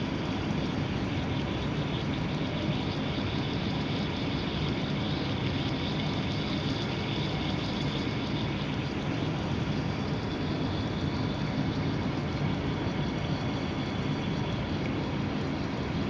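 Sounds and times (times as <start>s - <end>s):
ventilation hum with hiss: 0.0s - 16.0s.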